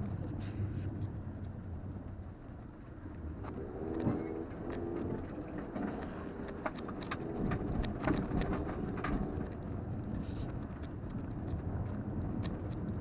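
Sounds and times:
car engine and tyres rumbling: 0.0 - 13.0
car knocks and rattles over bumps: 3.0 - 13.0.

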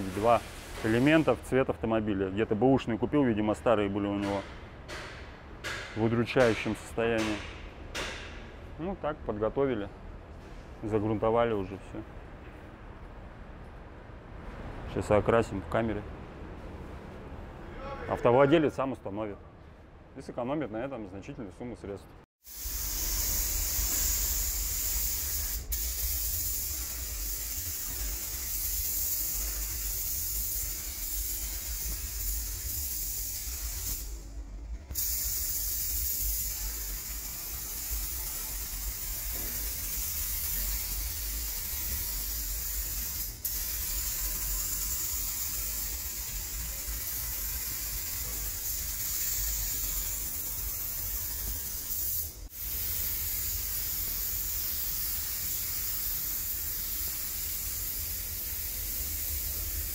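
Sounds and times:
paint spray gun hissing: 22.4 - 34.2, 34.9 - 59.9.

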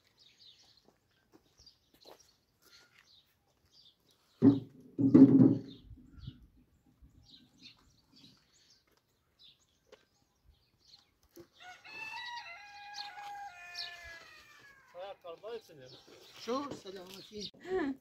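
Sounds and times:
rooster crowing: 11.6 - 15.0.

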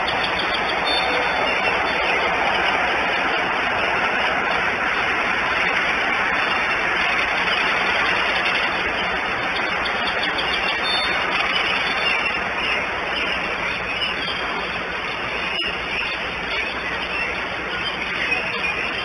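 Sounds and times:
rain rushing hiss: 0.0 - 16.5.

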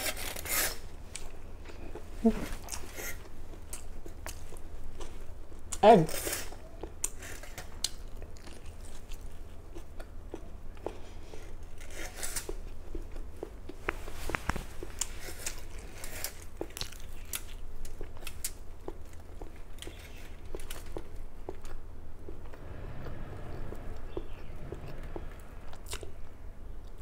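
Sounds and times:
wet crunching chews: 14.9 - 21.8
faint low hum: 16.9 - 27.0.

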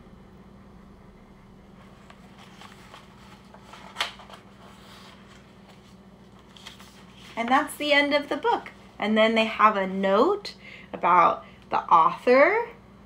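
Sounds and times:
faint steady hum: 0.0 - 13.0
book pages turning: 1.8 - 8.6.

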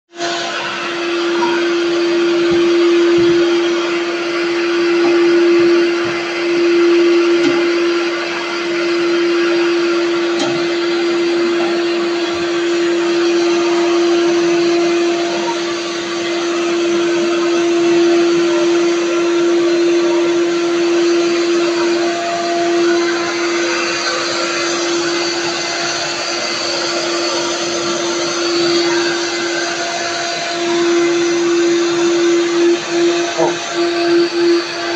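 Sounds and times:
carpet extractor vacuum motor: 0.1 - 34.9.

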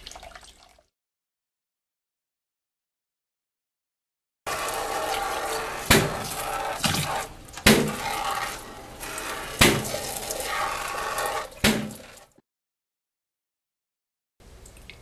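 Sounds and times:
water spraying into plastic tank: 4.5 - 12.4.

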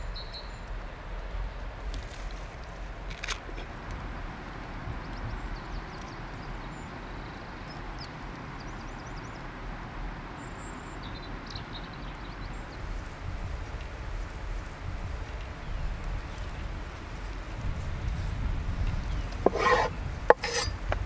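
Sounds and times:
small birds chirping: 0.0 - 0.8, 4.9 - 9.6, 10.3 - 17.6, 18.9 - 21.0
steady hiss with low rumble: 0.0 - 21.0.

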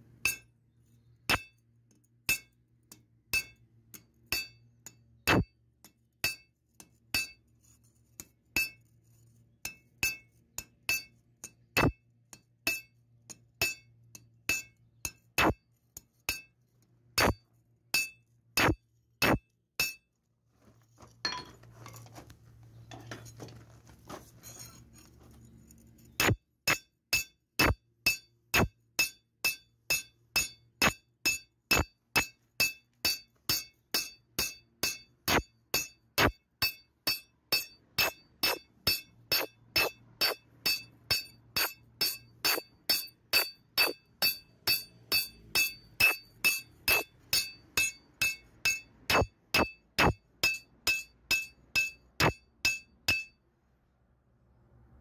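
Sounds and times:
hammer striking metal on anvil: 0.2 - 0.5, 2.3 - 6.5, 9.6 - 12.0, 12.6 - 16.6, 21.3 - 21.6, 26.2 - 53.4.

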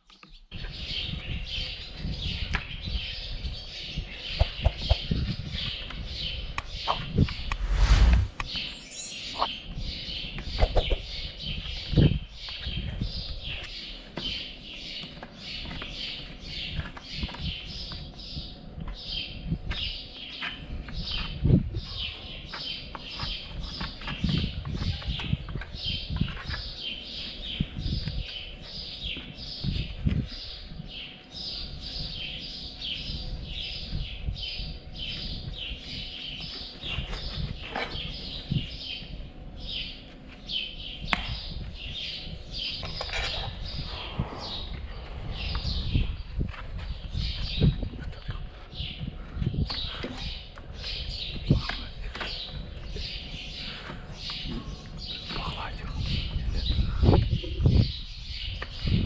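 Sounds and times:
small bird chirping: 3.9 - 13.8.

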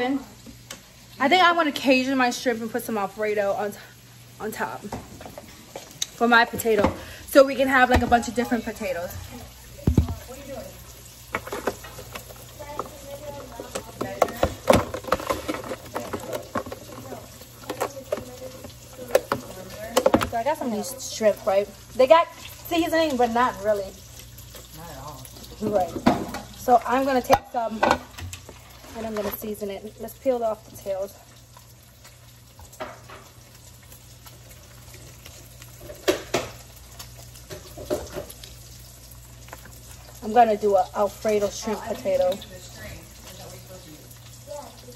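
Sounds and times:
plastic container clicks and crinkles: 13.6 - 20.4.

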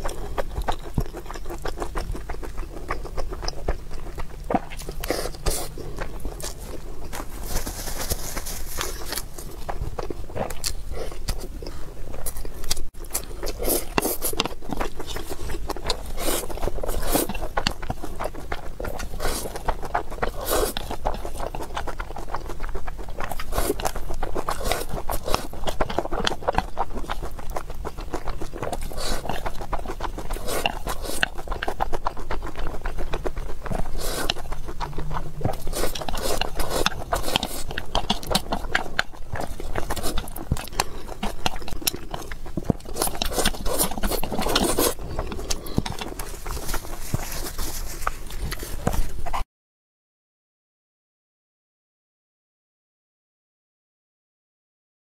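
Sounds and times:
mouth chewing and smacking: 0.0 - 49.4
chopsticks scraping a bowl: 33.9 - 38.3.

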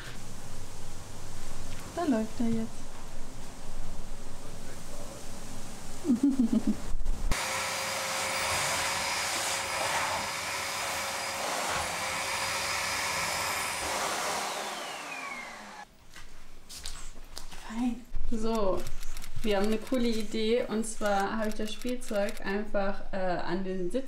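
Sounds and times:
vacuum cleaner motor whine: 7.3 - 15.9.

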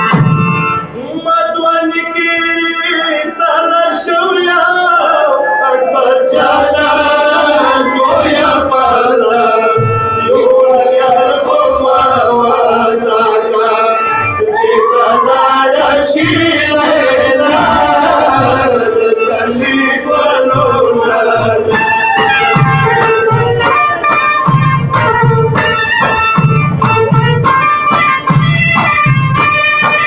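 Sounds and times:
men chanting a lament: 1.0 - 23.5
low thumping beat: 14.4 - 30.0.

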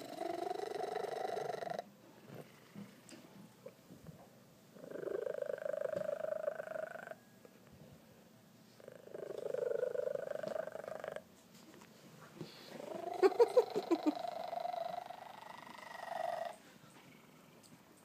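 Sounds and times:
cat purring loudly: 0.0 - 3.0, 4.8 - 7.2, 8.8 - 11.3, 12.8 - 17.6.

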